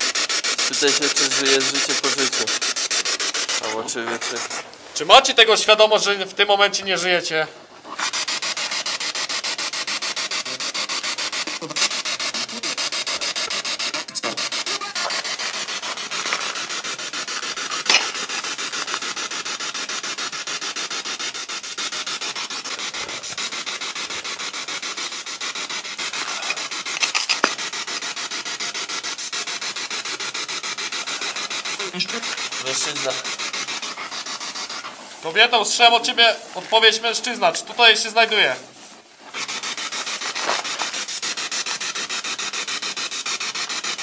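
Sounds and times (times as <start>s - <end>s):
chopped radio static: 11.4s - 19.0s, 31.0s - 33.9s, 34.5s - 38.6s.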